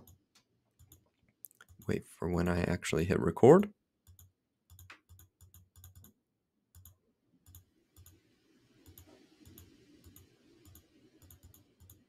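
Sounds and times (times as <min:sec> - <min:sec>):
faint computer mouse clicks: 0:06.8 - 0:08.2, 0:08.8 - 0:12.0.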